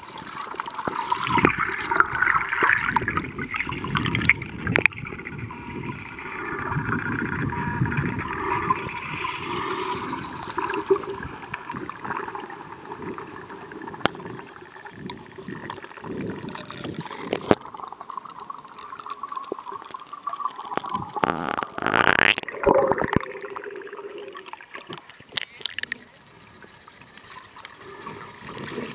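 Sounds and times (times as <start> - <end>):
underwater gurgling rush: 0.0 - 28.9
sharp underwater clicks: 24.8 - 26.1.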